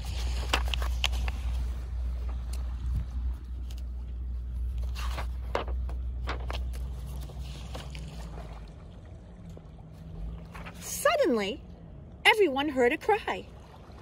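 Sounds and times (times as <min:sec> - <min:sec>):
paper pages rustling: 0:00.0 - 0:08.2
wind rumbling on microphone: 0:00.0 - 0:11.0.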